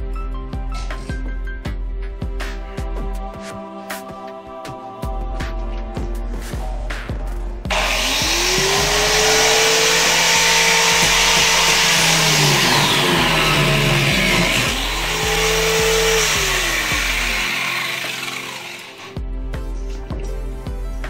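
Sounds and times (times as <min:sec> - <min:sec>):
electric motor whirring: 0:07.7 - 0:19.1.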